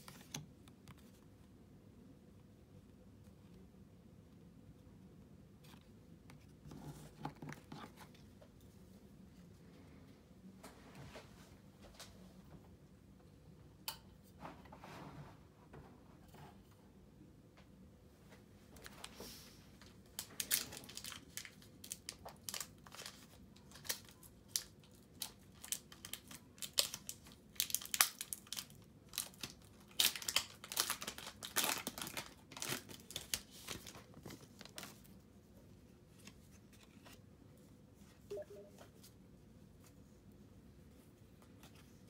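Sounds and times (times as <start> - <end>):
crinkling and rustling: 5.4 - 9.6, 18.2 - 42.0.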